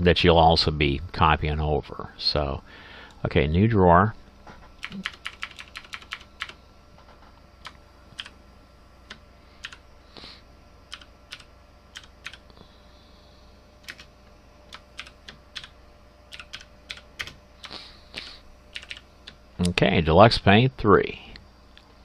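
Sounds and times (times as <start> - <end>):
faint low hum: 0.0 - 22.0
keyboard typing: 4.8 - 6.6, 9.1 - 9.8, 10.9 - 12.4, 13.8 - 14.1, 14.7 - 15.7, 16.3 - 17.8, 18.7 - 19.4.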